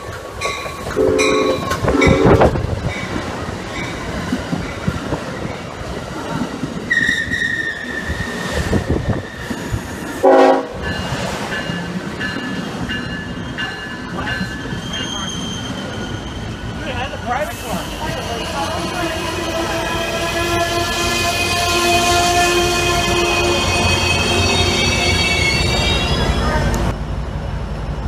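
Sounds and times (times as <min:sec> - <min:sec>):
train coaches rumbling past: 0:00.0 - 0:28.0
train horn blasts: 0:01.0 - 0:02.6, 0:10.2 - 0:11.0, 0:18.2 - 0:26.9
train wheel squeal: 0:06.9 - 0:10.1, 0:10.9 - 0:26.9.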